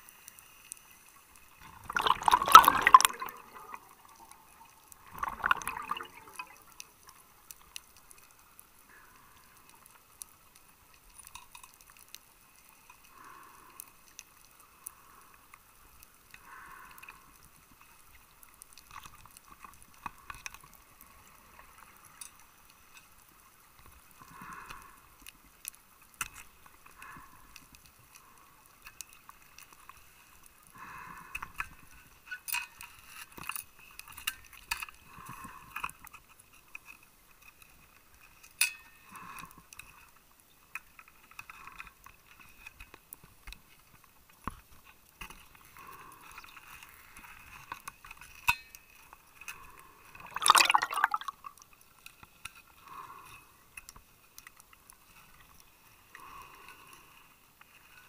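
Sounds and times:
underwater bubbles gurgling: 0:01.6 - 0:07.2, 0:50.1 - 0:51.5.

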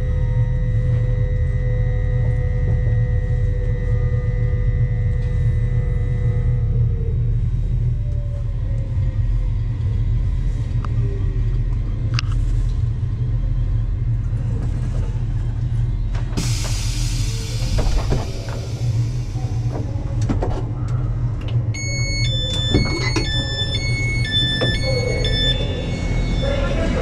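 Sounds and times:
train rumbling on rails: 0:00.0 - 0:27.0
faint whine dropping in pitch: 0:20.7 - 0:27.0.

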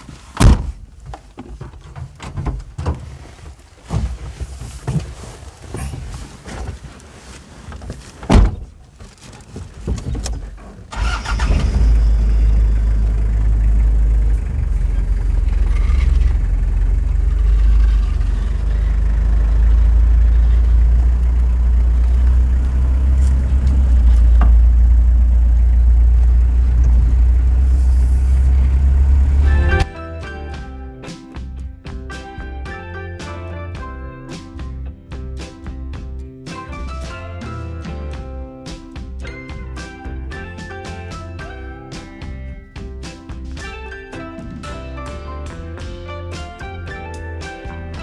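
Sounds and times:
vehicle rumbling on dirt track: 0:08.2 - 0:29.9.

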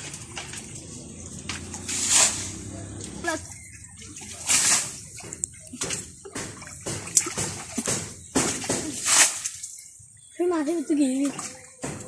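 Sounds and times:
hands splashing in muddy water: 0:00.0 - 0:09.8.

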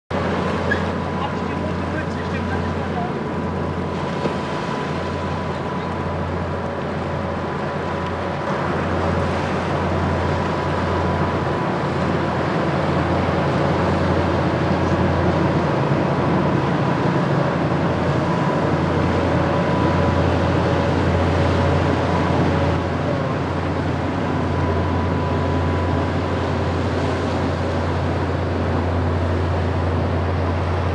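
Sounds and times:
ship diesel engine drone: 0:00.1 - 0:30.9
wind and water hiss: 0:00.1 - 0:30.9
faint steady whine: 0:00.2 - 0:30.9.

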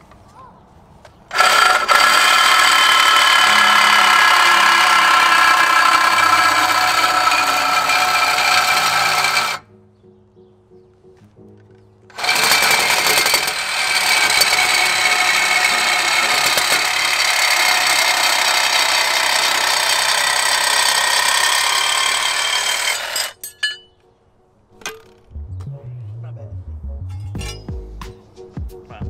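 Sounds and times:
grinder grinding metal: 0:01.3 - 0:09.6, 0:12.1 - 0:23.8.

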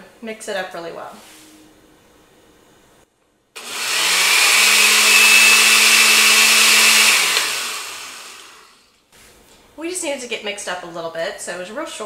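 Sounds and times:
blender motor whining: 0:03.6 - 0:08.8.

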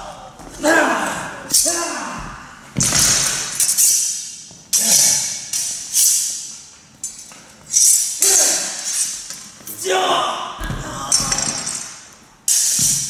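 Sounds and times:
steel swords clanging: 0:02.8 - 0:09.4, 0:11.1 - 0:13.0.

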